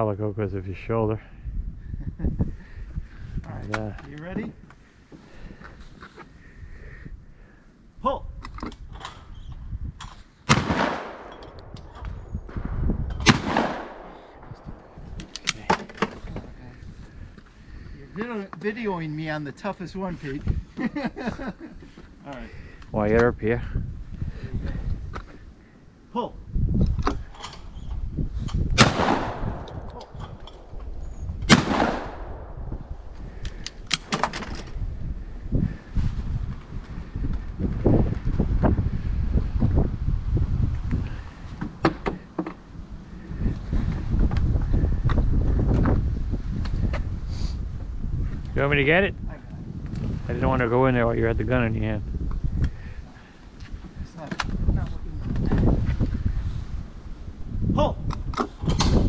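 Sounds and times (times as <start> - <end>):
shotgun shots echoing: 10.5 - 15.9, 28.8 - 30.7, 31.4 - 32.9
sharp clicks: 11.2 - 12.2, 13.1 - 16.1, 28.5 - 32.3, 33.4 - 34.8.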